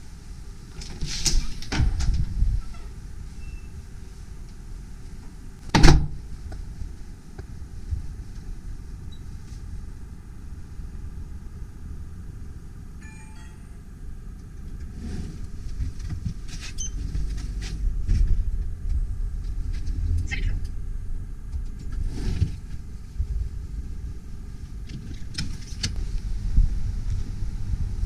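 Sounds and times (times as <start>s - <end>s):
low rumble: 1.7s - 28.0s
lift electronic chime: 13.0s - 13.9s.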